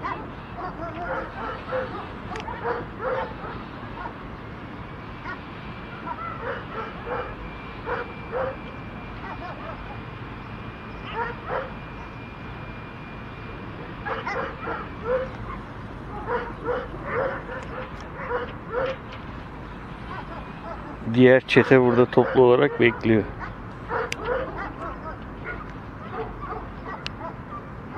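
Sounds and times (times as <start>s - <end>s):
dogs barking and yipping: 0.0s - 4.4s, 5.0s - 10.2s, 10.9s - 12.3s, 13.8s - 27.9s.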